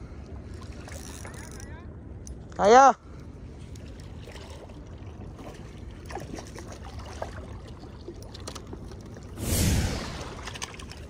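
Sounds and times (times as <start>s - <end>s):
water washing: 9.2s - 11.0s
wind noise: 9.3s - 11.0s.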